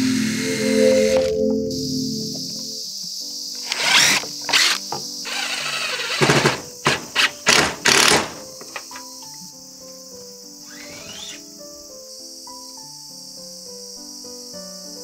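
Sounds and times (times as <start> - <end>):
background music: 0.0 - 15.0
impact driver driving screws: 3.7 - 8.5.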